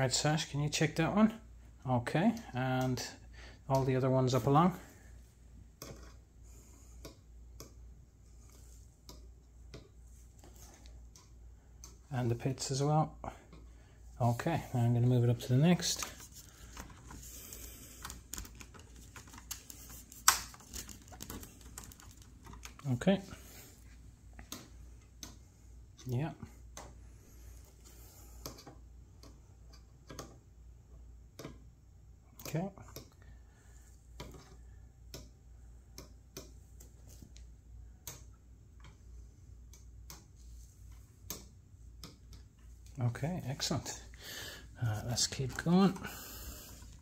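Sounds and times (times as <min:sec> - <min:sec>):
low steady hum: 0:00.0 - 0:47.0
light plastic clicks and taps: 0:24.3 - 0:25.4.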